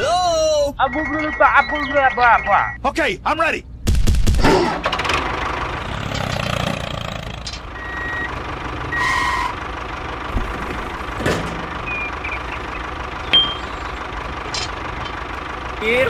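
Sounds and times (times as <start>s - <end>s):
tractor engine idling: 4.8s - 16.0s.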